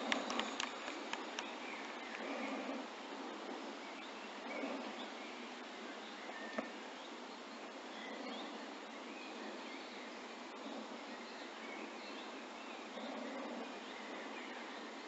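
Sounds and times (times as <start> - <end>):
steady outdoor hiss: 0.0 - 15.0
faint bird chirps: 3.8 - 15.0.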